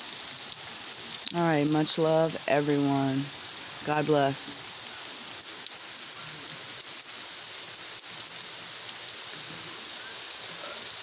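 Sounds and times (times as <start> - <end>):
steady rain: 0.0 - 11.0.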